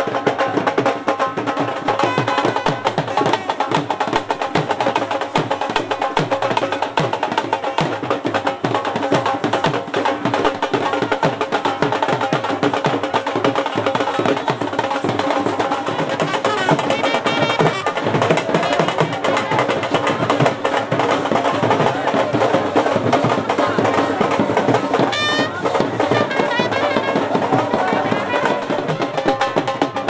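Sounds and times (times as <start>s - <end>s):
fast dense drumming: 0.0s - 30.0s
procession band music: 15.4s - 18.4s, 24.8s - 29.6s.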